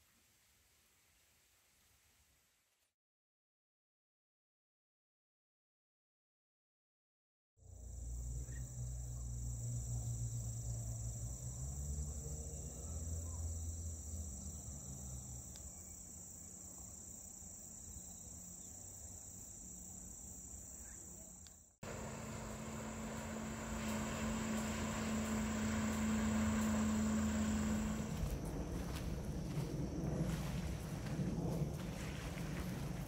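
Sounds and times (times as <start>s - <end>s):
crickets chirring: 7.7s - 31.9s
distant motorboat hum: 21.8s - 29.0s
wind rumble on microphone: 27.7s - 33.0s.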